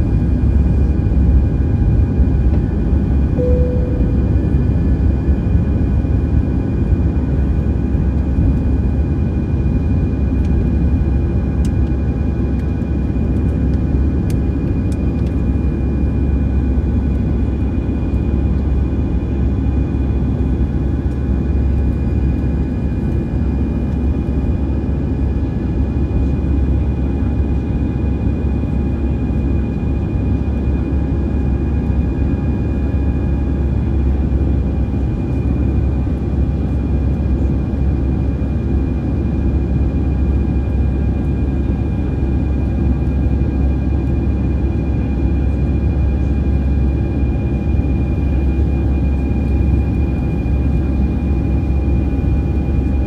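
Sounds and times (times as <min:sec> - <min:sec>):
airplane cabin engine rumble: 0:00.0 - 0:53.0
jet engine whining tones: 0:03.1 - 0:06.6.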